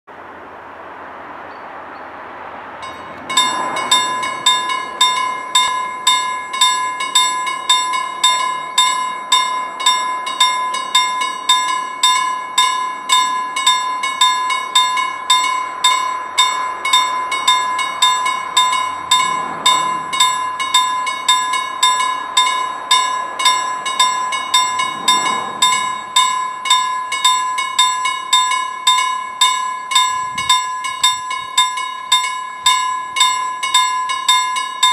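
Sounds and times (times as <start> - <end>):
level crossing warning bell: 2.8 - 34.9
steady ringing tone: 2.8 - 34.9.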